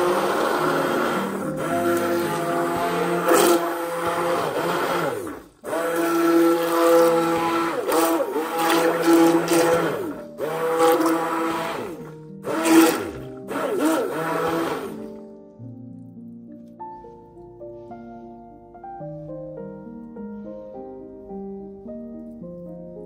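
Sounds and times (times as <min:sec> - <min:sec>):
immersion blender motor whine: 0:00.0 - 0:15.1.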